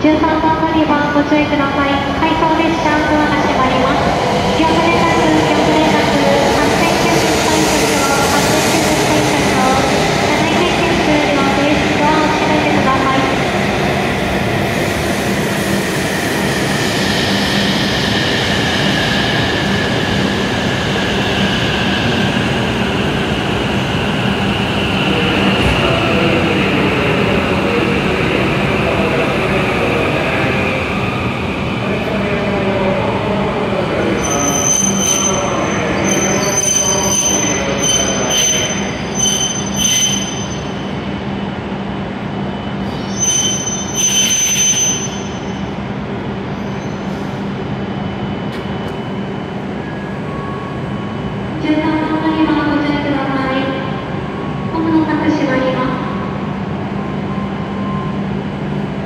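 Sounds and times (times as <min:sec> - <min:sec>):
high wheel squeal: 0:34.1 - 0:40.8, 0:42.9 - 0:45.6.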